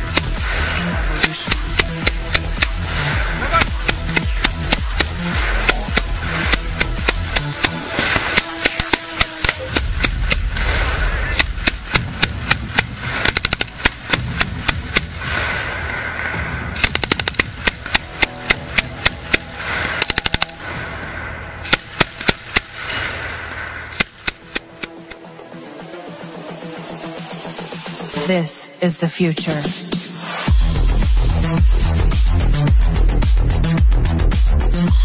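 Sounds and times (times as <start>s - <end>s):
machine gun firing: 0.0s - 15.9s, 16.7s - 20.6s, 21.6s - 23.0s.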